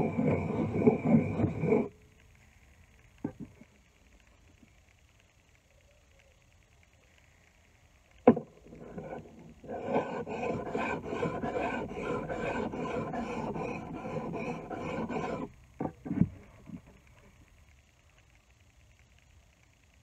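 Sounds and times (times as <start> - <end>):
blade rasping on sharpening stone: 9.0 - 15.5.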